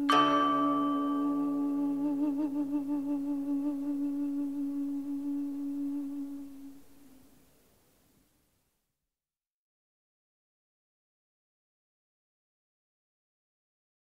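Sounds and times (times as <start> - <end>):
background music held note: 0.0 - 7.3.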